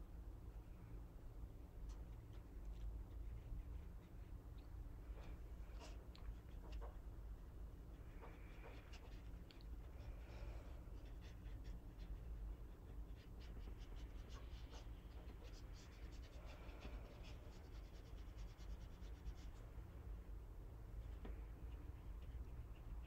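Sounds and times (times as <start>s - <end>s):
low steady hum: 0.0s - 23.0s
brush scratching on paper: 7.9s - 10.0s, 10.8s - 19.9s.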